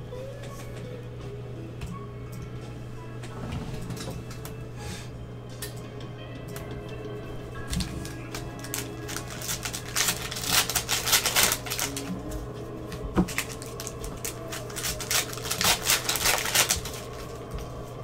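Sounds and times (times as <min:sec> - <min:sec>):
cards and wrappers rustling: 0:07.6 - 0:17.8.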